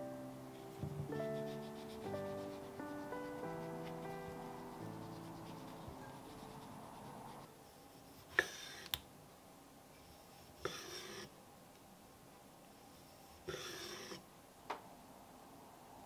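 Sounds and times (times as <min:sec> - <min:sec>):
background music: 0:00.0 - 0:07.5
scraping strokes: 0:01.2 - 0:09.0, 0:10.0 - 0:11.3, 0:12.8 - 0:14.2.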